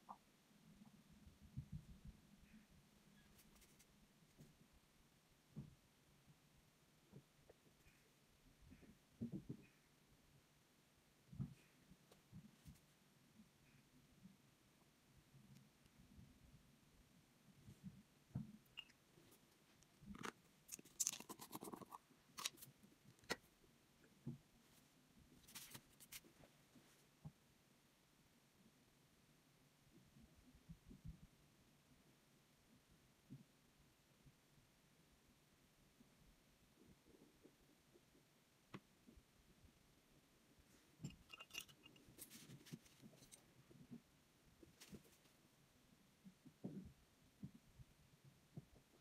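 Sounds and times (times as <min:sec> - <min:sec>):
plastic jar lid clicks and scrapes: 0:20.1 - 0:23.4, 0:41.1 - 0:43.4.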